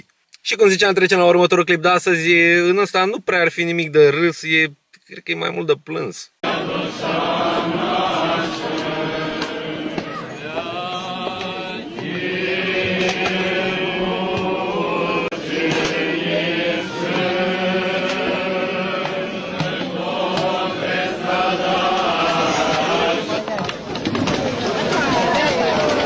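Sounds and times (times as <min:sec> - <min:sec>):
clergy liturgical chant: 0:06.4 - 0:26.0.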